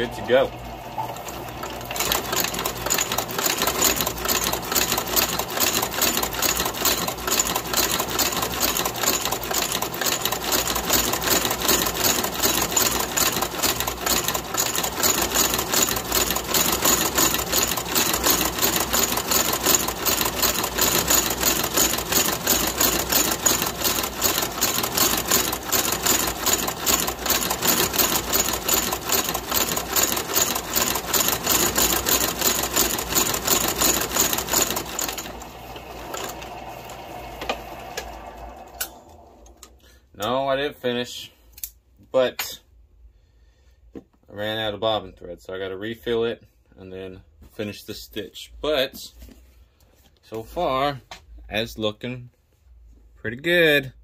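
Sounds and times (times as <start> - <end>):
stitching machine clattering: 0.0 - 39.0.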